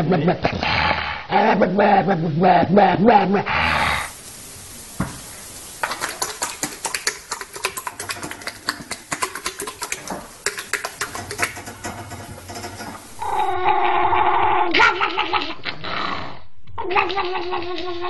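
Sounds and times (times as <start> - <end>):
horse flapping its lips: 5.8 - 13.2
dog crying: 13.2 - 15.8, 16.7 - 18.0.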